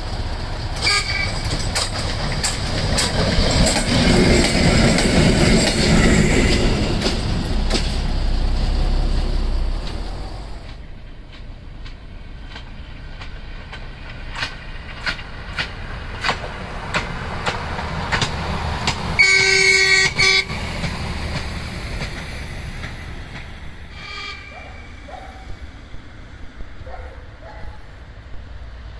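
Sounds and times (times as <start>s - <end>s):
wheels clicking over rail joints: 0.0s - 23.9s
diesel engine rumble: 0.0s - 28.9s
train horn blast: 0.8s - 1.5s, 19.2s - 20.6s, 23.9s - 25.5s.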